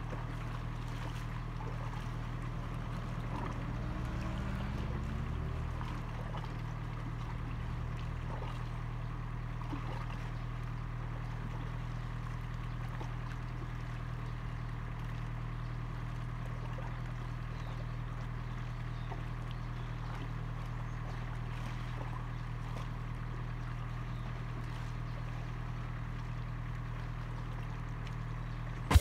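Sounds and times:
faint small splashes: 0.0s - 29.0s
small waves lapping on rocks: 0.0s - 29.0s.

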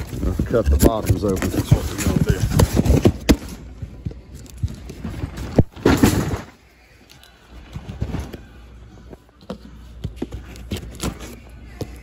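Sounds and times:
cardboard scraping: 0.0s - 3.5s
cardboard rustling and bumping: 0.0s - 3.6s.

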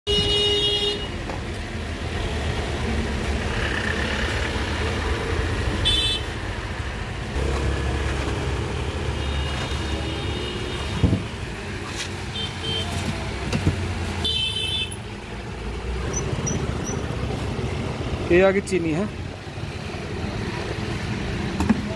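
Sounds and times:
street traffic: 0.0s - 21.9s
vehicle horn toots: 0.1s - 1.1s.

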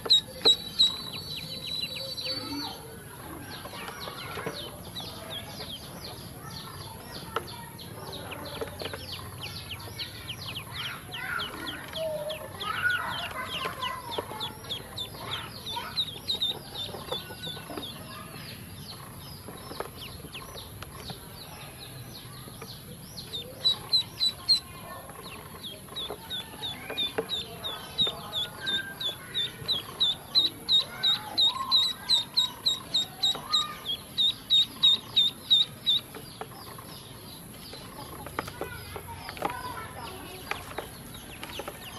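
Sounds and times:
soft low duckling calls: 0.0s - 4.3s, 23.2s - 36.2s
ducklings peeping: 0.0s - 41.9s.

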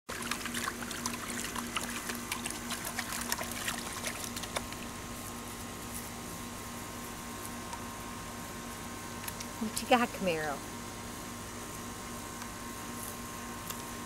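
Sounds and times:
puppy splashing in water bowl: 0.1s - 5.0s.

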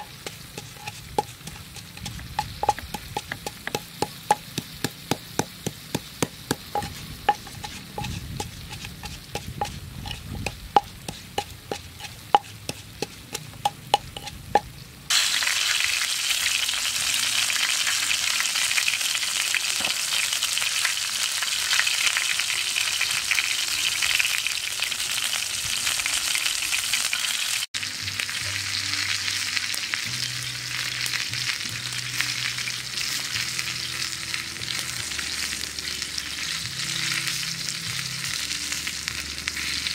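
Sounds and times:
wooden pestle knocking in mortar: 0.0s - 14.6s
chicken sizzling on a grill: 0.0s - 39.9s.

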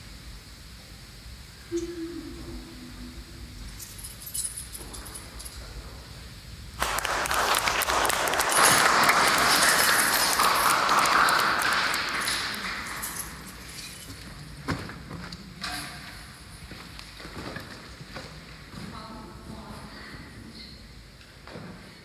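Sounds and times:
audience applause: 6.8s - 13.7s.

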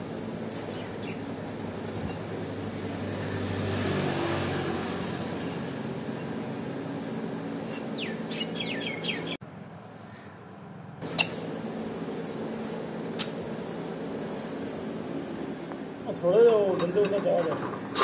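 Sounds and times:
passing vehicle engine hum: 2.3s - 9.4s
bird chirping: 7.9s - 9.4s.

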